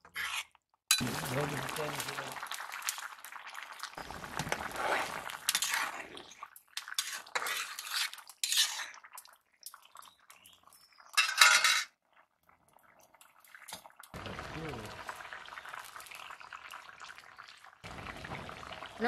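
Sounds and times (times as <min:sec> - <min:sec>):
metal spatula scraping pan: 0:00.0 - 0:01.0, 0:04.5 - 0:09.0.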